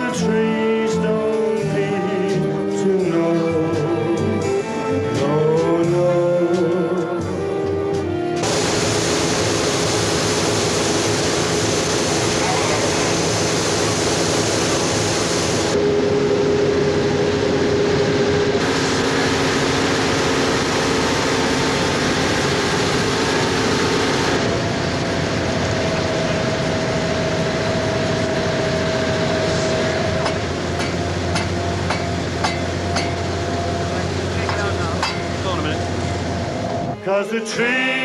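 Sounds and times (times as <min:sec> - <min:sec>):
steady tones: 0:01.2 - 0:38.0
mechanical running noise: 0:08.4 - 0:36.9.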